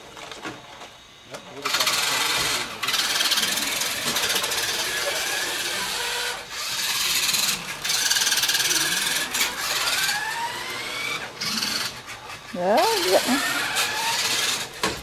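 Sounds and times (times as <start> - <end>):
toy truck motors whirring: 0.0 - 15.0.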